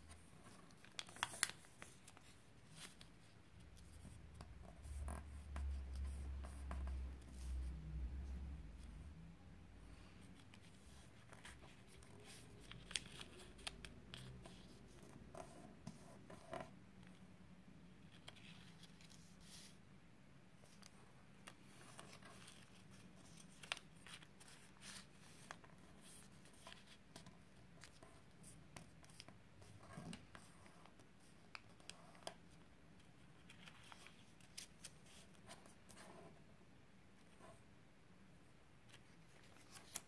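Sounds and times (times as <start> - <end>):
paper rustling and creasing: 0.0 - 4.2, 10.3 - 16.0, 20.6 - 28.0, 33.1 - 36.1, 38.9 - 40.0.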